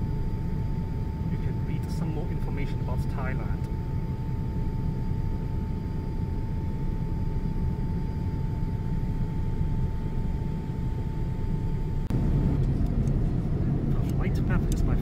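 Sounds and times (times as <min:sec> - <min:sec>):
engine and airflow rumble: 0:00.0 - 0:15.0.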